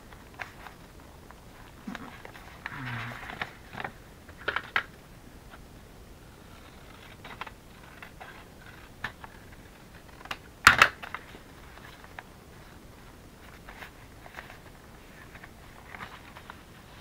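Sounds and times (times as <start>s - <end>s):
paper crinkling: 6.5s - 17.0s.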